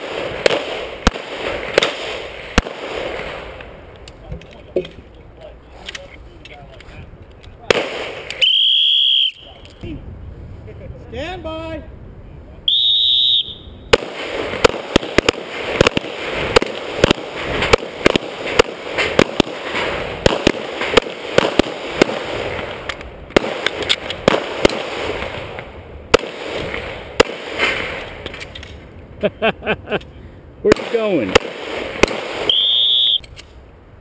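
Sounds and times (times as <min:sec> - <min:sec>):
rapid pistol fire: 0:13.9 - 0:22.4, 0:26.1 - 0:27.7, 0:30.7 - 0:32.5.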